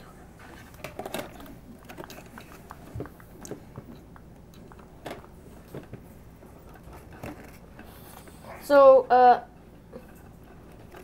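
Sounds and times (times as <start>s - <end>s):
wires on a plastic lid: 9.9s - 11.0s.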